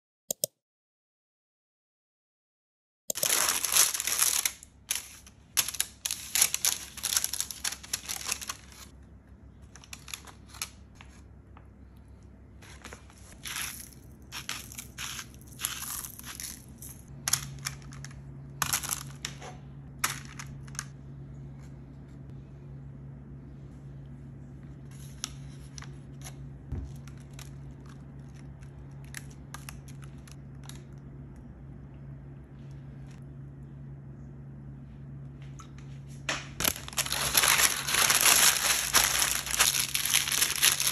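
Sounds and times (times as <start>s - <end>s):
low steady hum: 3.1s - 40.9s
paper crinkling and rustling: 3.2s - 9.0s, 9.6s - 11.3s, 12.6s - 20.8s, 24.8s - 31.0s, 36.6s - 40.9s.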